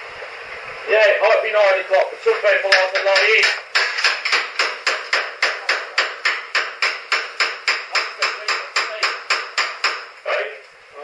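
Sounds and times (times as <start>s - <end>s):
rapid hammering: 2.6s - 10.2s.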